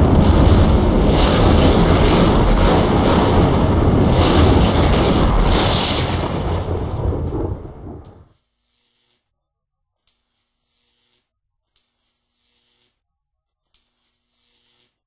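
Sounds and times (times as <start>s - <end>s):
electric arcs rumbling and crackling: 0.0s - 9.2s, 10.1s - 13.0s, 13.7s - 15.0s.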